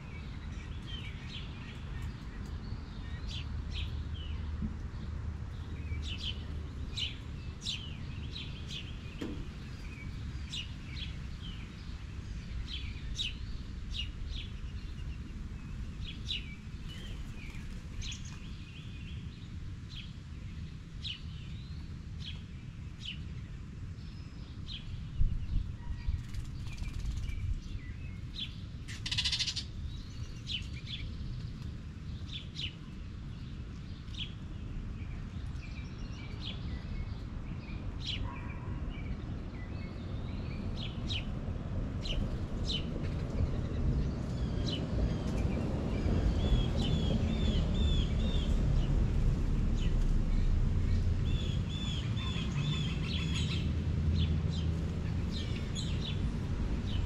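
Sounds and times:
songbirds chirping: 0.0 - 57.0
low outdoor rumble: 39.2 - 57.0.

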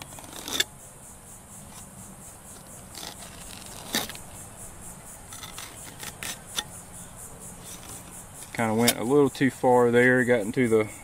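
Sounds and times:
fillet knife scraping backbone: 2.8 - 4.3, 5.3 - 6.8.

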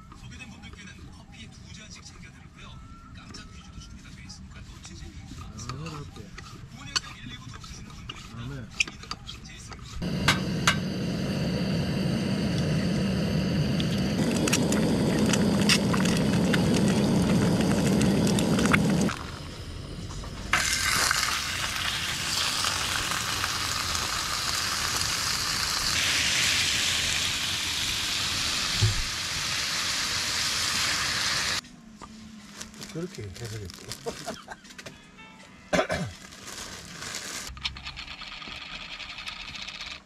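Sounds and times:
gas burner rushing: 10.0 - 31.6
meat sizzling in a frying pan: 20.5 - 31.6.

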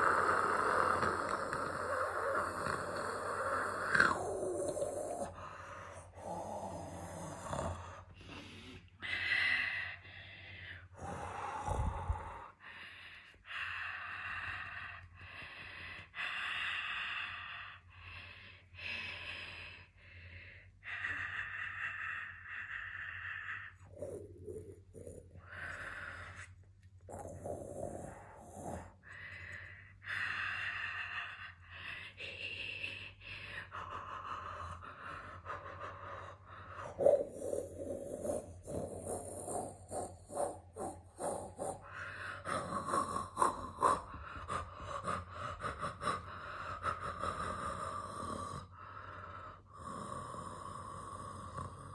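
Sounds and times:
person breathing: 0.0 - 51.9.

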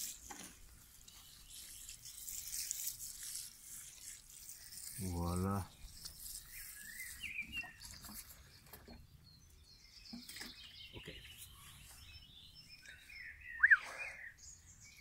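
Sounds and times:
birds chirping: 5.0 - 15.0.

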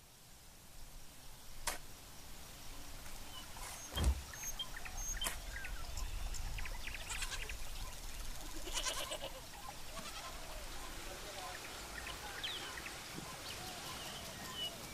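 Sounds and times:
birds chirping: 0.9 - 14.9
dull thump: 3.9 - 4.4.

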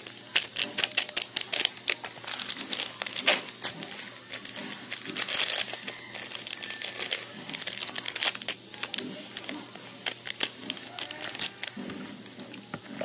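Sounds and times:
sachet crinkling and tearing: 0.0 - 12.4.

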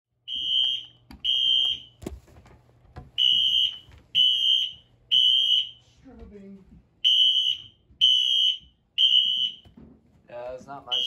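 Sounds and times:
fire alarm horn blasts: 0.2 - 2.0, 3.2 - 5.8, 7.0 - 9.7.

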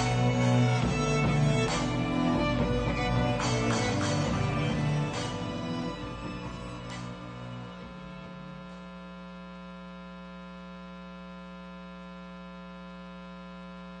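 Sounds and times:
music: 0.0 - 8.9
electrical mains hum: 0.0 - 14.0.

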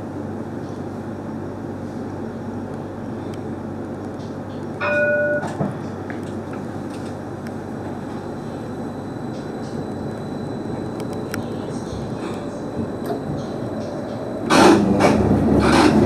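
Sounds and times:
tram rumbling: 0.0 - 16.0
short tone: 4.8 - 5.6.

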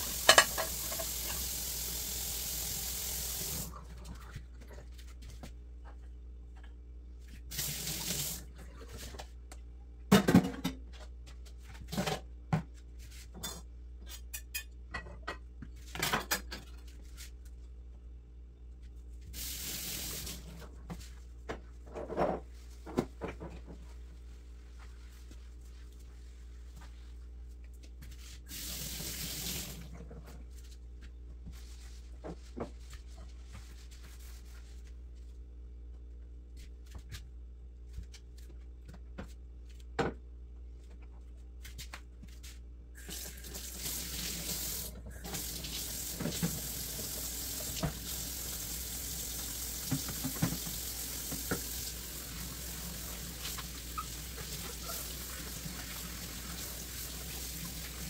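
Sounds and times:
faucet running: 0.0 - 3.7, 43.1 - 58.0
dishes clinking: 0.2 - 1.4.

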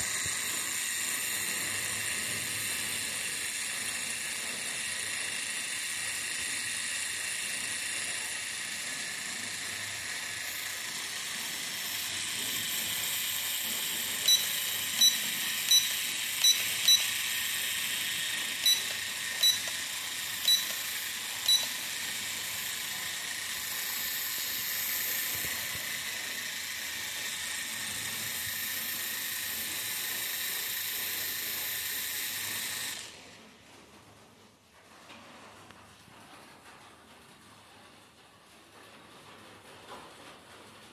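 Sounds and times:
toy drone motors whirring: 0.0 - 33.2
short high beeps: 14.3 - 17.1, 18.6 - 19.8, 20.5 - 20.8, 21.5 - 21.7.

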